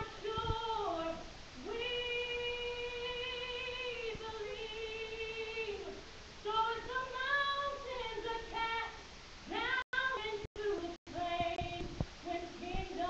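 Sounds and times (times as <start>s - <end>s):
young woman singing: 0.0s - 13.0s.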